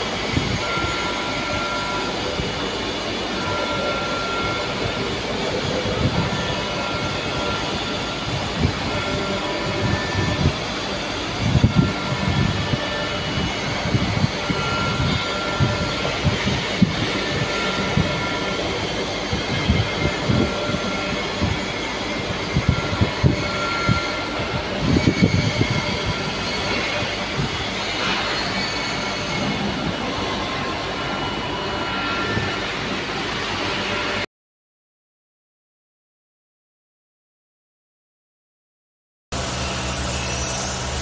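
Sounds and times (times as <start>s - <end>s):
vibrating motor drone: 0.0s - 34.2s, 39.4s - 41.0s.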